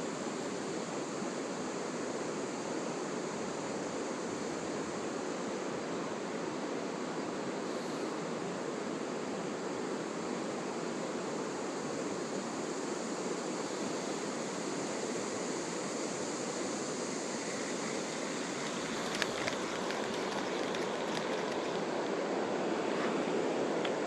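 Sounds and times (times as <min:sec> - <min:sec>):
faint high hiss: 0:00.0 - 0:24.0
river water rushing: 0:13.2 - 0:24.0.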